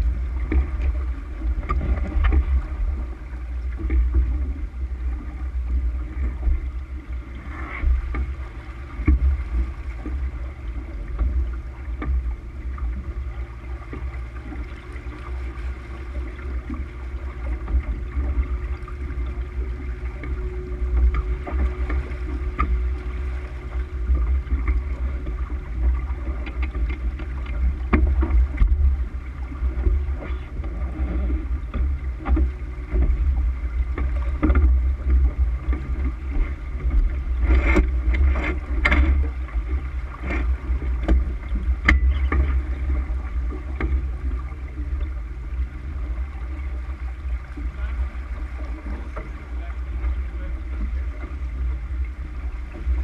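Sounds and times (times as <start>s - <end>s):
water rushing along hull: 0.0s - 53.0s.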